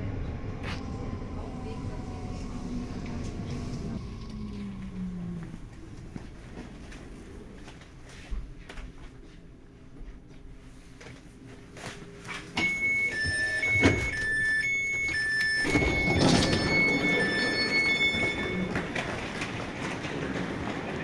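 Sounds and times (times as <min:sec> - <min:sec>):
train rumbling: 0:00.0 - 0:21.0
two-tone warning beeps: 0:12.6 - 0:18.8.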